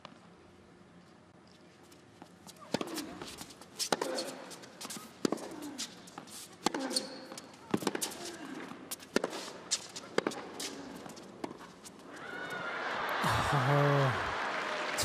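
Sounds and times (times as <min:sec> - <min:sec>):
racket striking tennis ball: 0:02.7 - 0:05.8, 0:06.6 - 0:08.3, 0:09.0 - 0:11.6
crowd cheering: 0:12.1 - 0:15.0.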